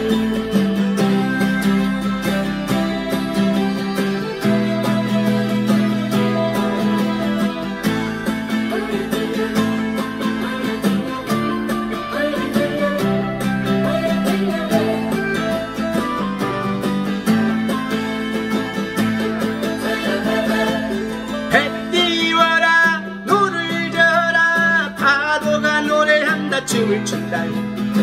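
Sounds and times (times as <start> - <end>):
acoustic guitar strummed: 0.0 - 28.0
man singing: 19.8 - 28.0.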